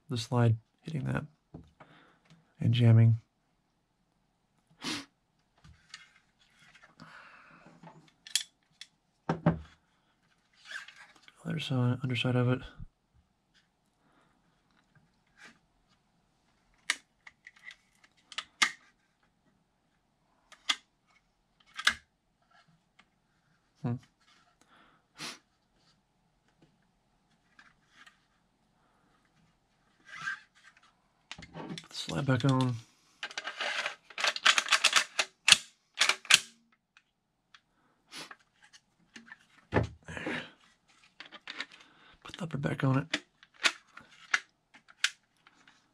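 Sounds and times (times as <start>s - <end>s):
hard plastic parts clicking: 31.3s - 36.6s, 41.1s - 42.4s, 43.0s - 45.8s
pistol slide clicks and clacks: 33.2s - 36.6s.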